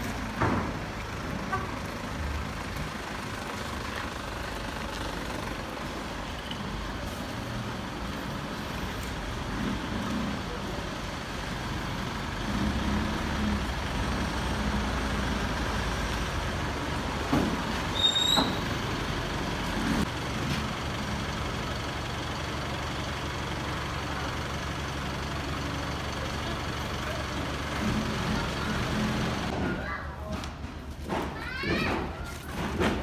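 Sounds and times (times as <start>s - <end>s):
vehicle engine humming: 0.0s - 29.6s
brief high squeak: 17.9s - 18.8s.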